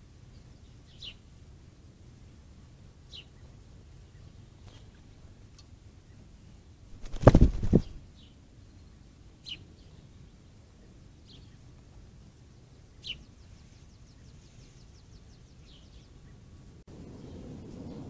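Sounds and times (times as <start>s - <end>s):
bird wings flapping and splashing: 6.9s - 8.0s.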